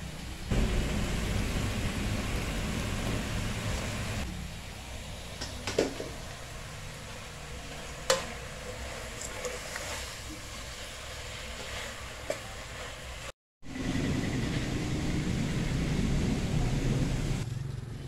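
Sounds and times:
steady hiss: 0.0s - 17.4s
low rumble: 0.5s - 4.3s
ladle stirring in steel pot: 7.2s - 13.3s.

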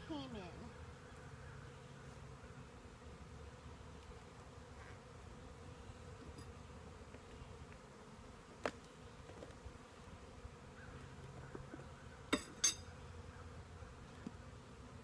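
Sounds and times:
honey bees buzzing: 0.0s - 15.0s.

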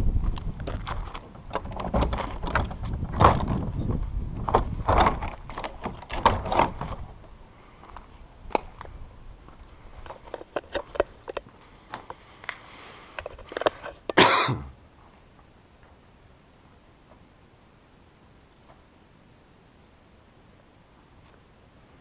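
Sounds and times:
wooden doors knocking and scraping: 1.1s - 7.1s.

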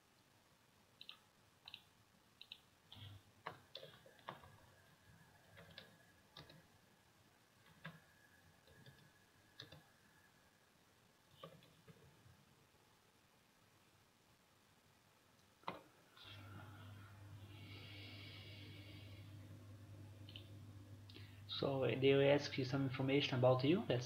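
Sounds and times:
keyboard and mouse clicks: 1.0s - 4.6s, 5.5s - 6.7s, 7.6s - 9.9s, 11.3s - 12.1s, 15.6s - 15.9s.

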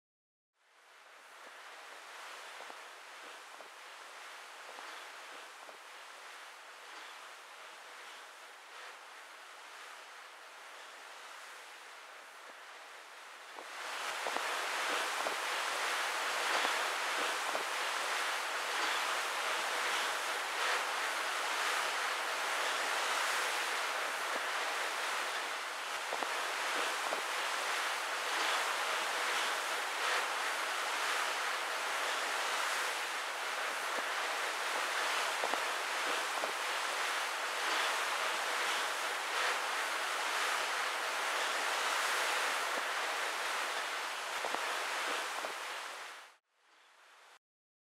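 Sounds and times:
wind: 0.6s - 47.4s
sea waves: 0.8s - 46.4s.

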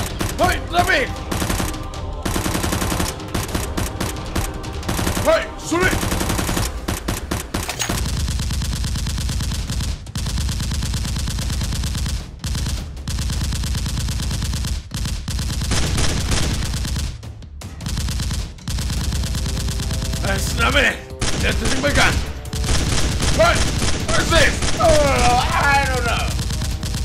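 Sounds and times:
machine gun fire sound effect: 17.9s - 27.0s.

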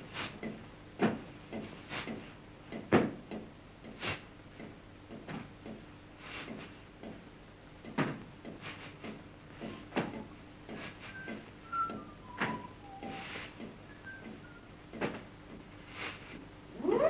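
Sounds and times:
short whistled notes: 11.2s - 14.7s.

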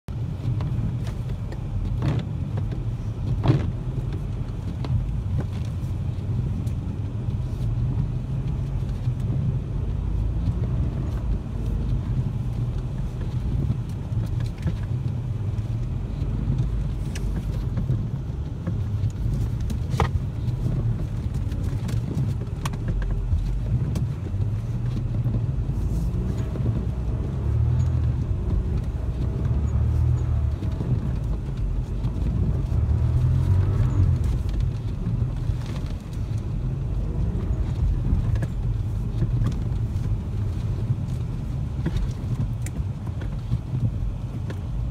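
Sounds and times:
deep rumble of engine and tyres: 0.0s - 44.9s
sharp clicks and knocks: 10.4s - 44.8s.

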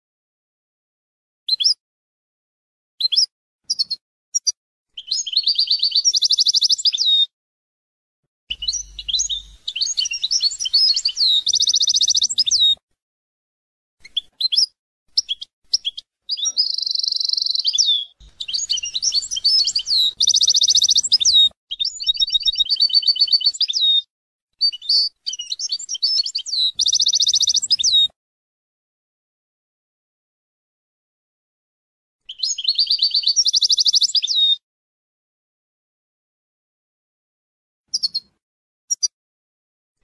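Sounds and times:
goldfinch singing: 5.0s - 7.3s, 8.5s - 12.8s, 14.0s - 28.1s, 32.3s - 34.6s.

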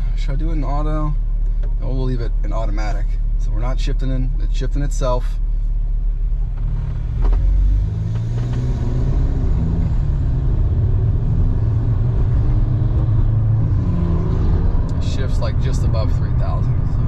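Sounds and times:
car engine accelerating: 6.0s - 17.0s.

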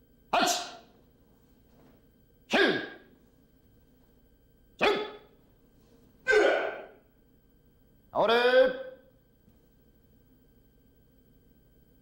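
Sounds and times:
person shouting sharp exhalations: 0.4s - 0.8s, 2.5s - 3.0s, 6.2s - 7.0s.

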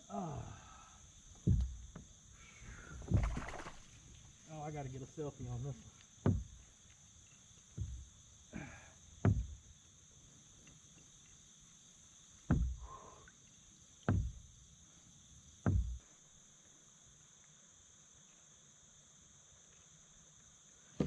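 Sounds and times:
high insect buzz: 0.0s - 21.0s
knocks on kayak hull: 1.4s - 2.1s, 6.2s - 6.6s, 9.2s - 9.6s, 12.5s - 12.8s, 14.0s - 14.5s, 15.6s - 16.0s.

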